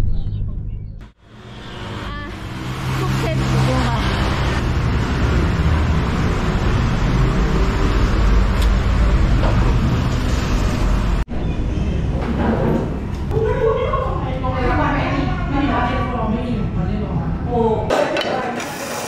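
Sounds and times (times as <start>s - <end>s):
vehicle engine and road noise: 0.0s - 13.3s.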